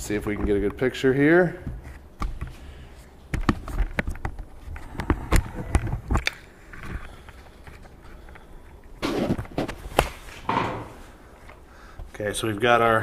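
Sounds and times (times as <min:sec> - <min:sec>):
clicks and knocks of handling things: 0:03.3 - 0:12.1.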